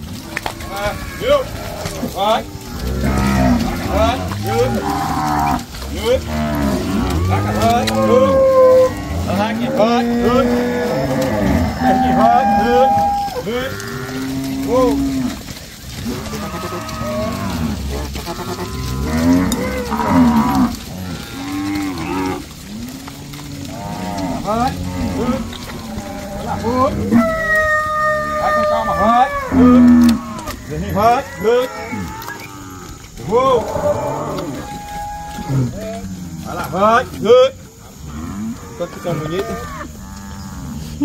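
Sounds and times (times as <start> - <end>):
cattle mooing: 0.0 - 41.0.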